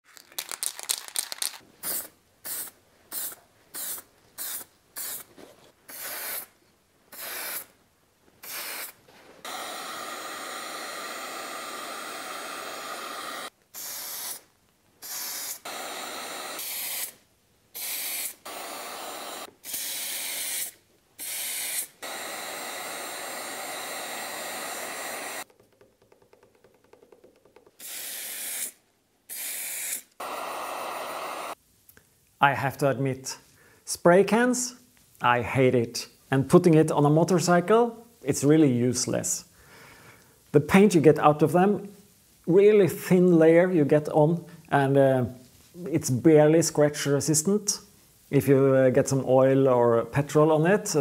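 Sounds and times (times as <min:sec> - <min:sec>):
spray can ball rattling: 0:00.0 - 0:06.5, 0:25.4 - 0:30.1
spray paint hissing: 0:00.4 - 0:07.8, 0:08.4 - 0:25.5, 0:27.8 - 0:31.6
heat gun blowing: 0:05.9 - 0:06.5, 0:07.1 - 0:07.7, 0:08.4 - 0:25.5, 0:27.8 - 0:31.6.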